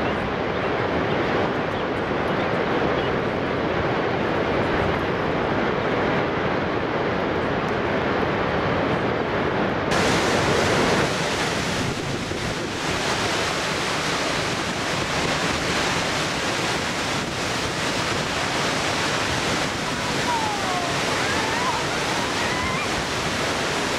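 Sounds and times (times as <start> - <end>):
churning rapids: 0.0 - 23.9
waterfall rushing: 9.9 - 23.9.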